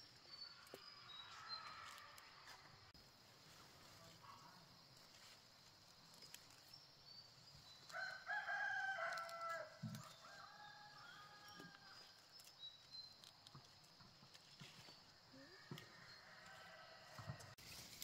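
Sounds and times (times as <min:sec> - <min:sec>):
rooster crowing: 0:07.9 - 0:12.0, 0:15.6 - 0:17.6.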